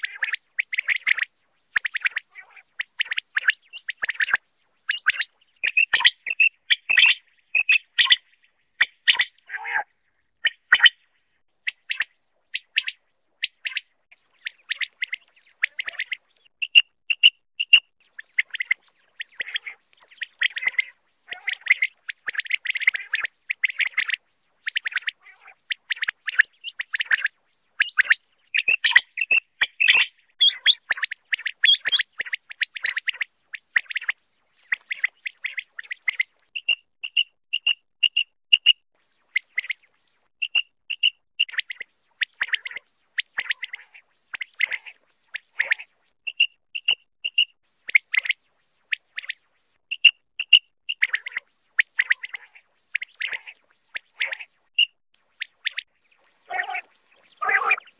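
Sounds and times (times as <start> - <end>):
quail chirping: 0.0 - 11.0, 11.6 - 48.4, 49.0 - 57.9
quail whistled notes: 3.4 - 8.2, 27.8 - 33.1, 53.2 - 57.9.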